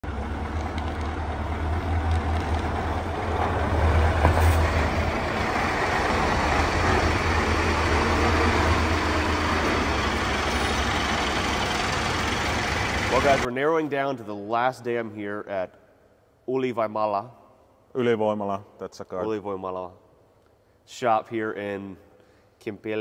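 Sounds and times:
diesel truck engine rumbling: 0.0 - 13.5.

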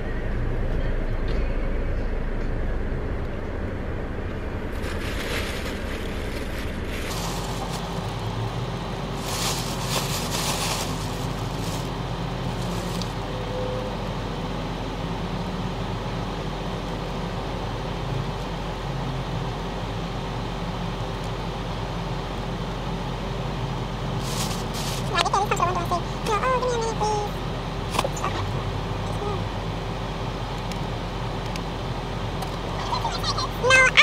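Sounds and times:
car engine idling: 0.0 - 34.0
plastic bag rustling: 4.7 - 13.2, 24.2 - 25.6.

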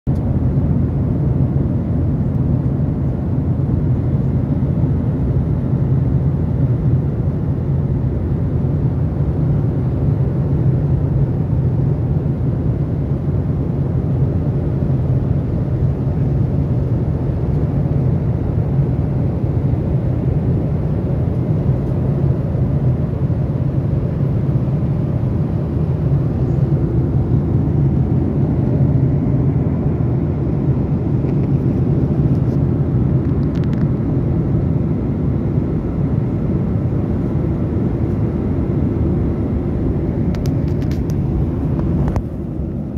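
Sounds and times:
airliner cabin engine rumble: 0.1 - 42.9.

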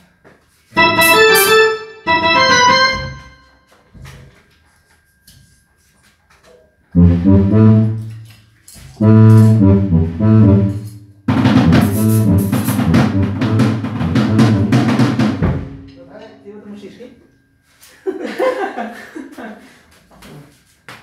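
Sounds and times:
drum kit playing: 0.8 - 3.4, 7.0 - 8.2, 9.0 - 16.0
electronic keyboard chords: 0.8 - 3.5, 7.0 - 8.2, 9.0 - 15.9
deep bass line: 2.1 - 3.3, 7.0 - 8.1, 9.0 - 15.9.

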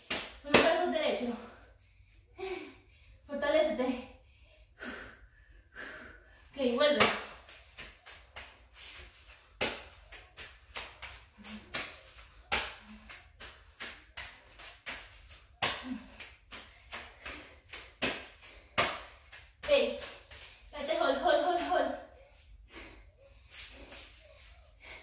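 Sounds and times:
hands slapping rubber mat: 7.0 - 20.5.

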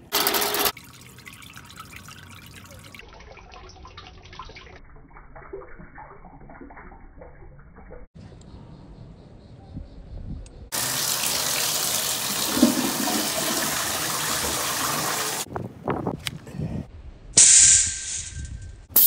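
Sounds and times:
toilet flushing: 0.0 - 0.8, 10.7 - 15.5
short loud hiss: 17.4 - 19.0.

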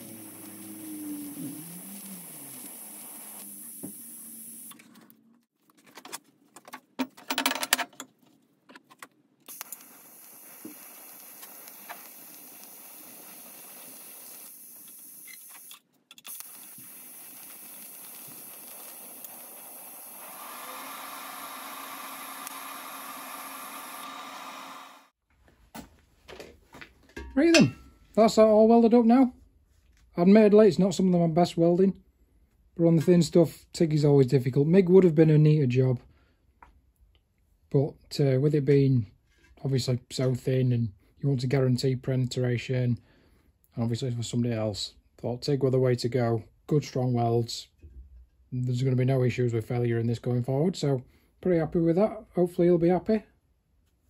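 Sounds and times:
welding arc hissing: 0.0 - 4.8, 9.5 - 25.1.

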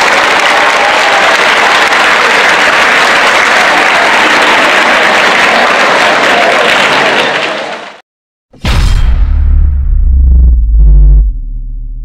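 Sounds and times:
crowd applauding: 0.0 - 8.0.

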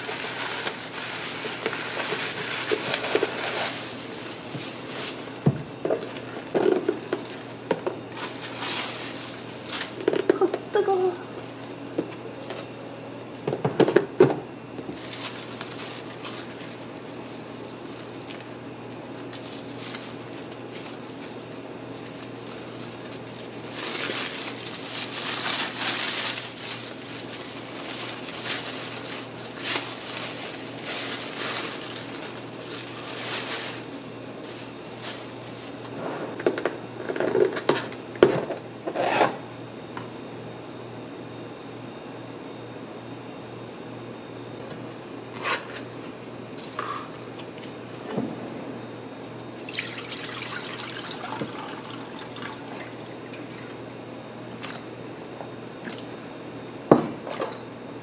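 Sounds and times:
plastic wrap crinkling: 0.0 - 11.8, 14.9 - 35.9.

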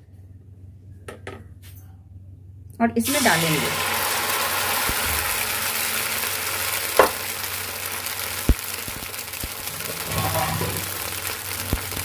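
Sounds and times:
batter sizzling in a frying pan: 3.0 - 12.0.

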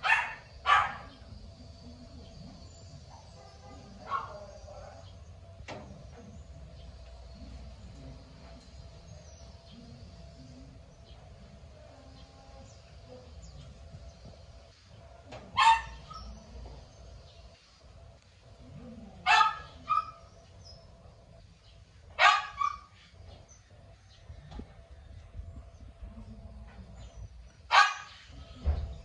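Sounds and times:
dog barking: 0.0 - 1.2, 3.1 - 5.1, 15.5 - 16.3, 19.2 - 20.3, 22.2 - 23.0, 27.7 - 28.3.

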